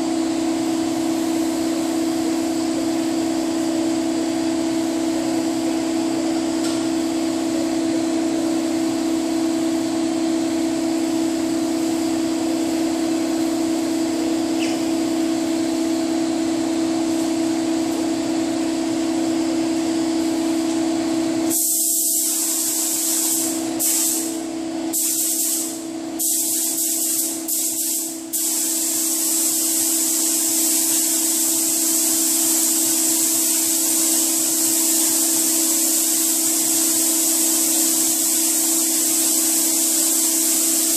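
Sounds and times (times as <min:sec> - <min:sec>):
machine hum: 0:00.0 - 0:27.6
paint spray gun hissing: 0:21.5 - 0:40.9.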